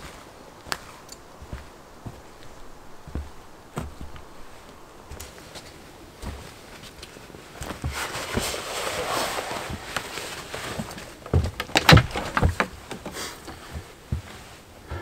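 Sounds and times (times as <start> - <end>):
footsteps crunching on trail: 0.0 - 14.6
sharp cracks: 11.5 - 13.0.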